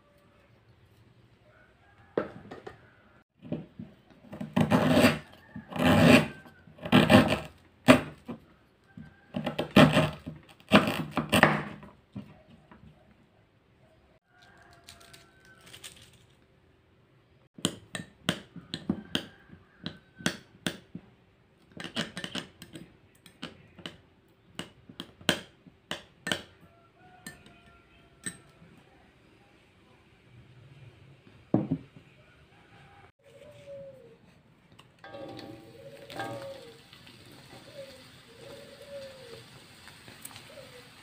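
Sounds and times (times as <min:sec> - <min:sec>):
metal spoon clinking glass bowl: 0:35.1 - 0:36.7.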